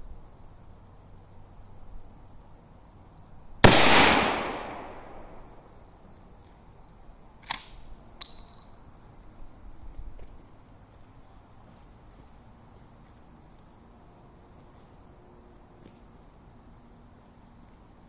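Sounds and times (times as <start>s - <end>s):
shotgun blast with echo: 3.6s - 5.6s.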